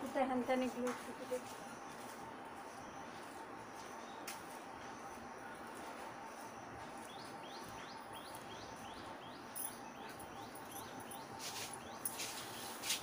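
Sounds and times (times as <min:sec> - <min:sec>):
bird chirping: 0:06.3 - 0:13.0.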